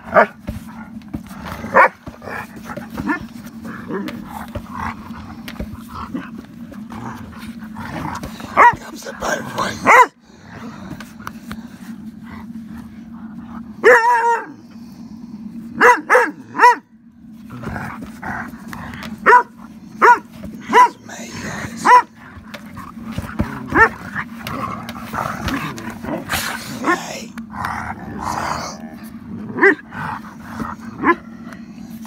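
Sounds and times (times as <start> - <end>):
dog barking: 0.1 - 0.4, 1.7 - 2.1, 8.5 - 8.9, 9.6 - 10.2, 13.8 - 14.6, 15.8 - 16.9, 19.2 - 21.1, 21.7 - 22.2.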